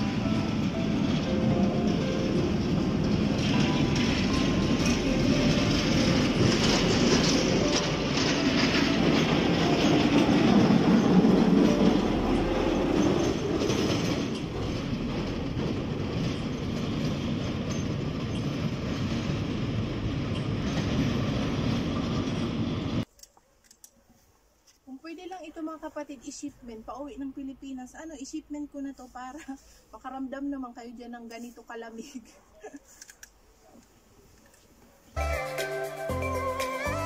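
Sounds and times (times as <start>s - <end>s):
heavy machine rumbling and grinding: 0.0s - 23.0s.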